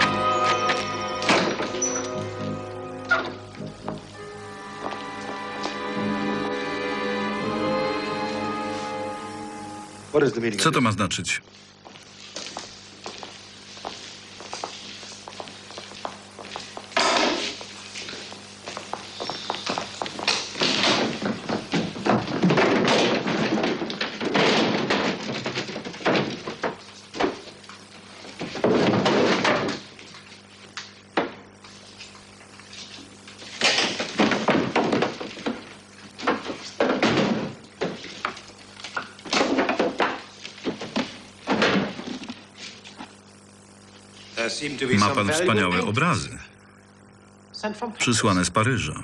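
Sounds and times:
wooden crates thudding and knocking: 20.5 - 27.5, 33.7 - 38.3.

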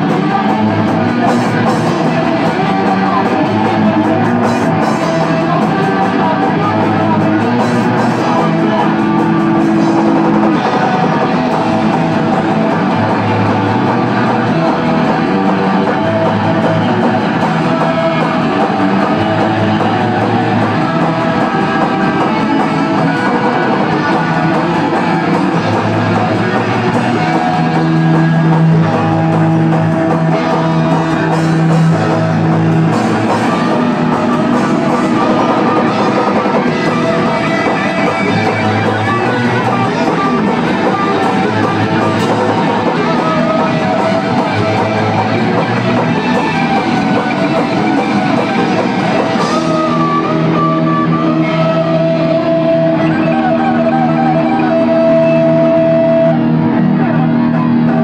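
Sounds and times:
drum kit: 0.0 - 58.0
electric guitar: 0.0 - 58.0.

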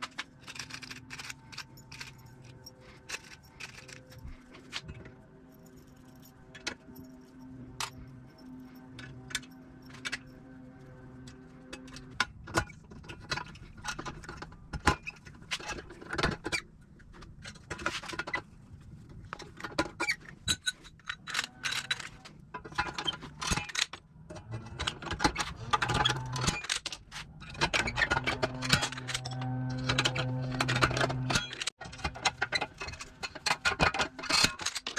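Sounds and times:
metal tools clicking and clanking: 0.0 - 10.6, 11.2 - 18.5, 19.2 - 34.9
low hum: 0.0 - 15.4, 24.2 - 31.7.

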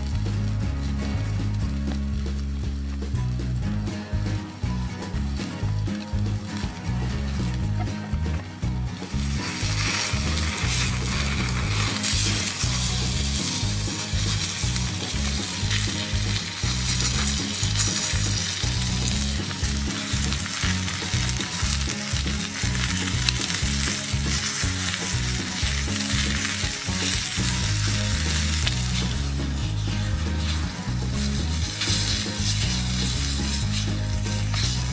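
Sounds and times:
steak sizzling in a pan: 8.7 - 34.9.

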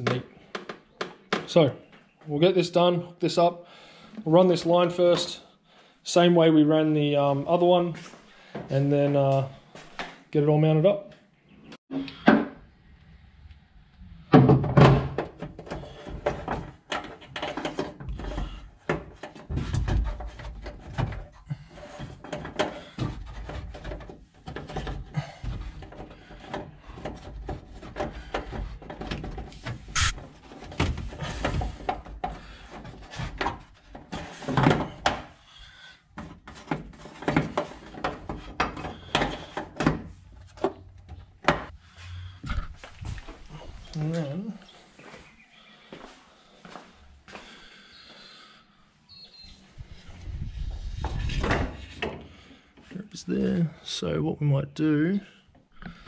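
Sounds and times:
knocks and clunks of cable handling: 0.0 - 2.1, 14.2 - 44.1, 50.6 - 53.0, 55.5 - 56.0.

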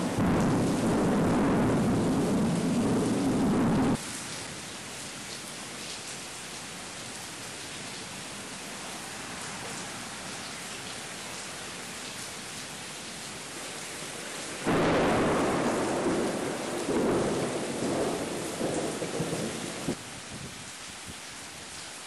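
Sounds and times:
loud thunder rumble: 0.0 - 4.0, 14.7 - 20.0
steady rain hiss: 0.0 - 22.0.

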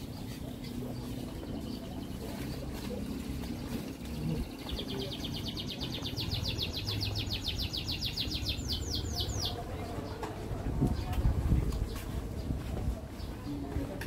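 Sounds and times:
bird singing fast trill: 4.2 - 9.6.

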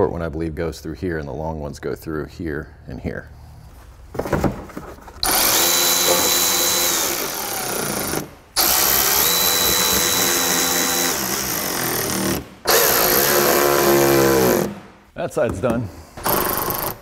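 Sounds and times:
cordless ratchet motor whining: 5.2 - 14.7.

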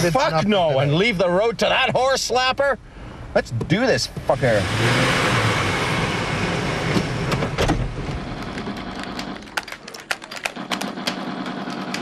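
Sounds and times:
car engine driving off: 4.2 - 9.6.

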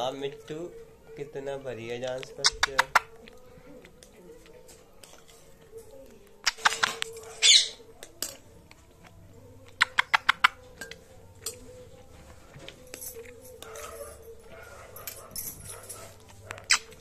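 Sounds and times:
parrot beak and claws tapping: 2.3 - 3.4, 6.4 - 7.3, 9.7 - 11.0.

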